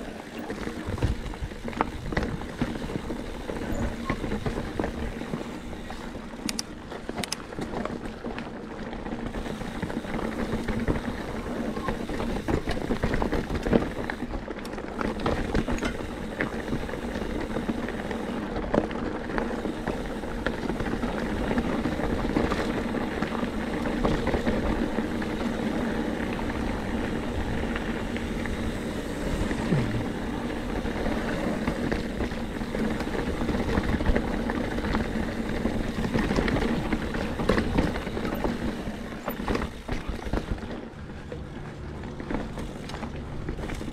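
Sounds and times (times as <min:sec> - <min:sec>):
bike clicks and rattles: 0:00.0 - 0:43.9
tyres rumbling on rock and gravel: 0:00.0 - 0:43.9
low hum: 0:26.8 - 0:31.0.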